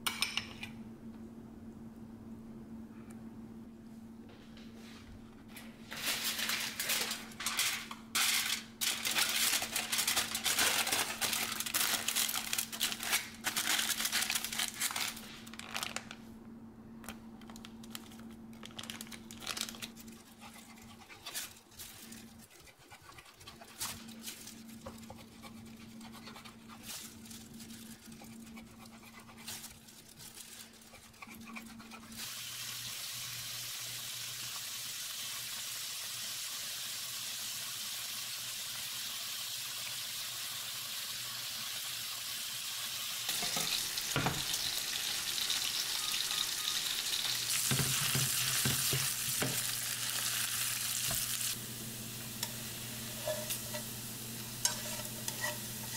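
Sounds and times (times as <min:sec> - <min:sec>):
crusty bread crackling: 0:05.9 - 0:16.2, 0:17.4 - 0:22.4, 0:26.6 - 0:31.1
bacon sizzling in frying pan: 0:32.2 - 0:55.9.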